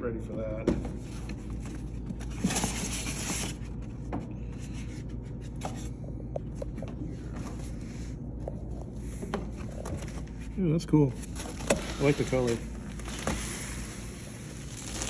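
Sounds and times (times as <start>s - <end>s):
steady low hum: 0.0s - 15.0s
cardboard scraping: 11.2s - 15.0s.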